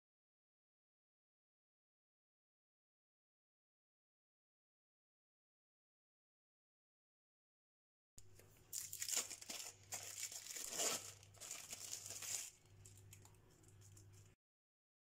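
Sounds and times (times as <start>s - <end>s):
baking paper crinkling: 8.4s - 14.4s.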